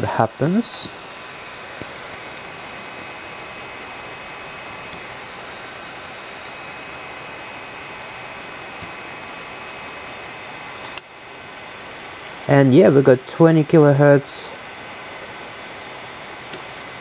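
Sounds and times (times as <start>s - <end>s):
small cooling fan whooshing: 0.0s - 17.0s.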